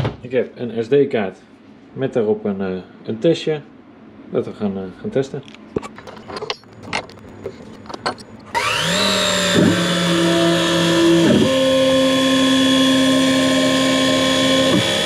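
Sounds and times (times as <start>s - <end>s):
stepper motors humming: 7.2s - 15.0s
mill spindle high whine: 8.0s - 15.0s.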